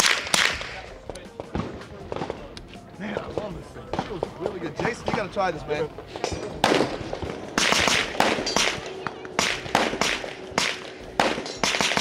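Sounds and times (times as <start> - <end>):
suppressed gunshots: 0.0 - 2.5, 6.3 - 12.0.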